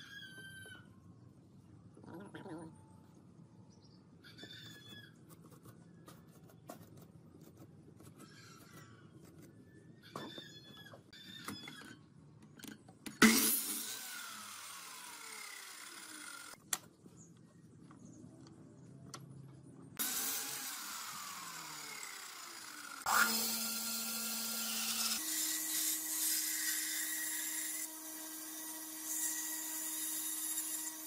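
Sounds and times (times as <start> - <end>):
miter saw cutting wood: 13.2 - 16.6, 20.0 - 31.0.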